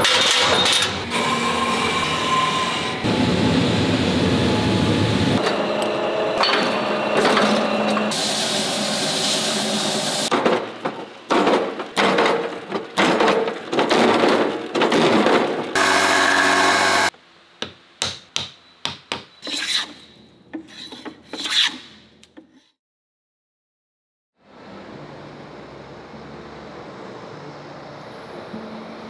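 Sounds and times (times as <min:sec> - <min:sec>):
woodworking machines running: 0:00.0 - 0:17.2.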